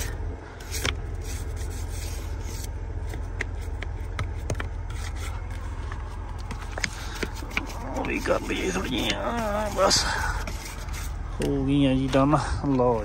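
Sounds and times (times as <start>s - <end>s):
truck engine idling: 0.0s - 13.0s
scraping snow and ice: 4.9s - 11.2s.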